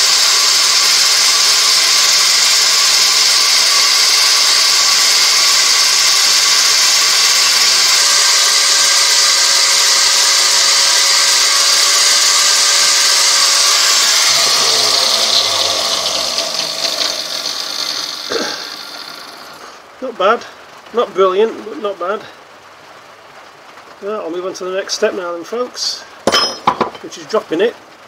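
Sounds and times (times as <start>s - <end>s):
angle grinder polishing steel blade: 0.0s - 19.7s
grinder winding down: 0.0s - 19.7s.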